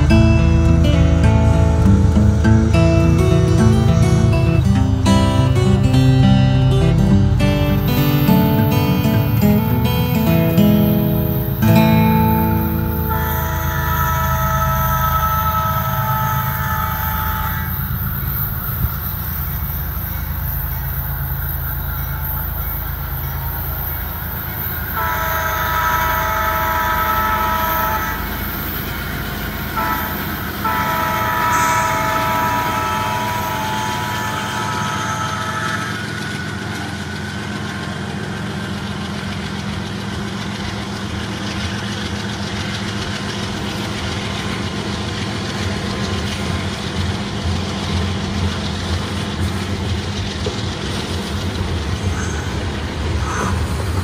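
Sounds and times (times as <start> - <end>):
multi-chime train horn: 0.0 - 37.8
train rumble: 0.0 - 54.0.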